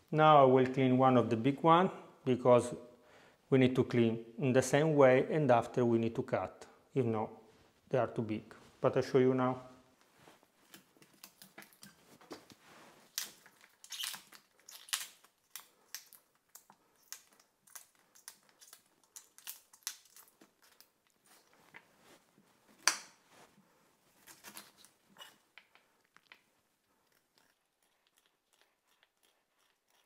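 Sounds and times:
leaves snapping and tearing: 13.1 - 21.0, 24.2 - 24.9
knife cutting artichoke: 24.2 - 25.4.

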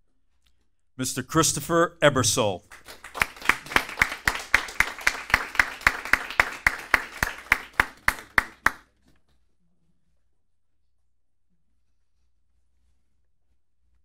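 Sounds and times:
audience clapping: 2.1 - 8.9.

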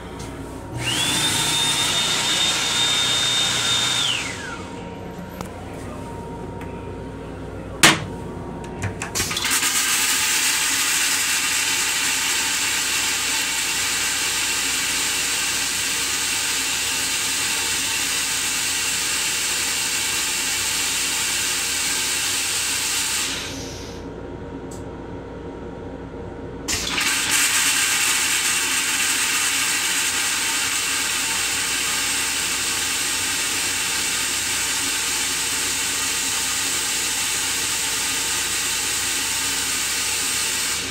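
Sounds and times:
toilet flushing: 0.7 - 4.7, 8.8 - 24.0, 26.7 - 40.9
toilet seat clacking onto bowl: 7.8 - 8.1.

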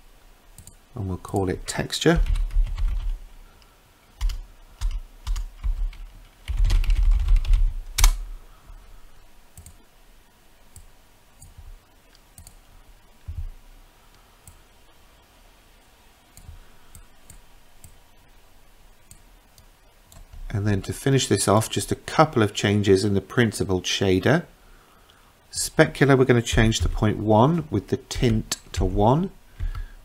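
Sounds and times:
computer keyboard typing: 2.1 - 3.2, 4.2 - 8.2.

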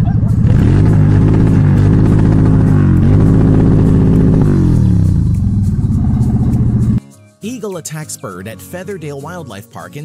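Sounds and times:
motorcycle engine revving: 0.0 - 7.0.

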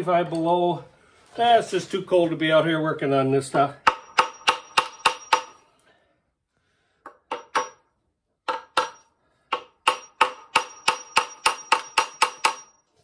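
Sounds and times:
hammer striking metal: 3.8 - 5.6, 7.1 - 12.8.

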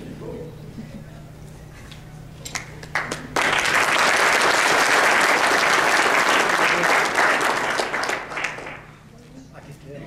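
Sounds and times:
audience applause: 2.8 - 9.0.

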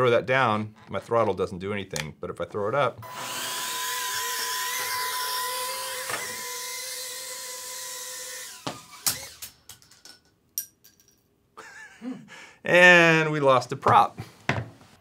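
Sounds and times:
quadcopter motors whining: 3.0 - 9.6.

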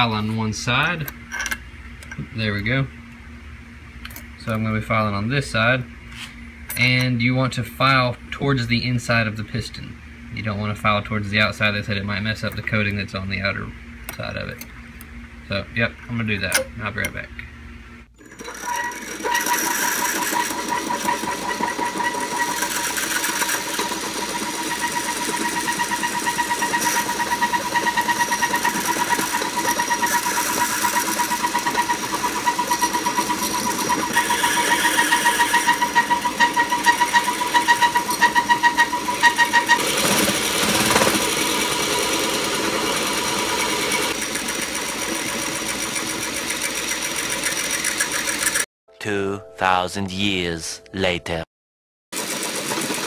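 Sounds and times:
metal rasping: 18.2 - 41.4
cordless drill whine: 18.2 - 46.0.

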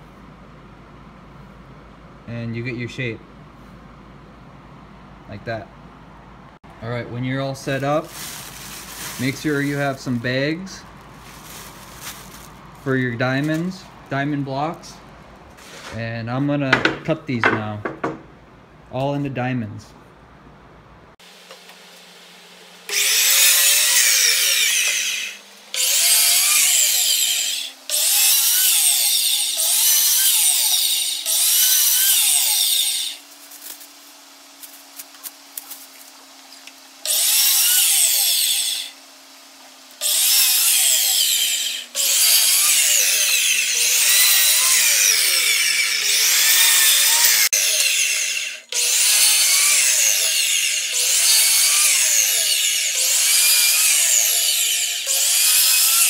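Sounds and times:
miter saw cutting wood: 9.2 - 10.6, 22.9 - 35.7, 37.0 - 56.0.

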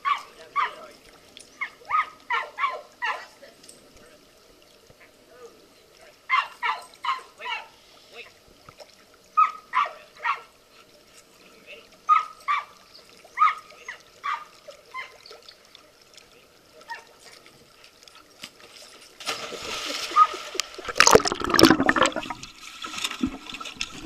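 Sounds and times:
underwater churning and bubbling: 19.5 - 24.0.

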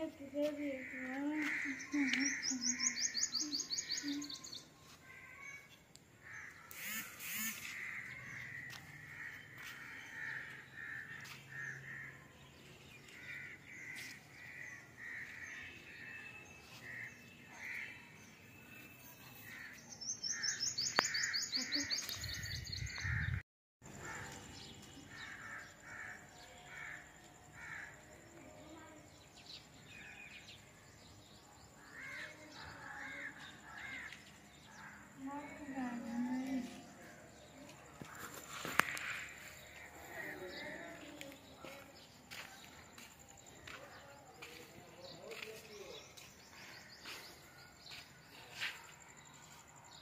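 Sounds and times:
crows cawing: 0.8 - 2.9, 6.2 - 12.3, 13.1 - 15.8, 25.1 - 28.0, 31.8 - 35.1.

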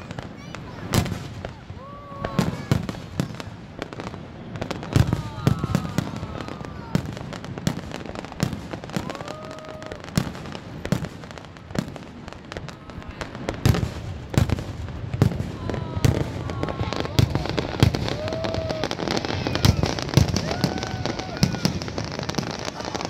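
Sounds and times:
fireworks bursting: 0.0 - 23.0.

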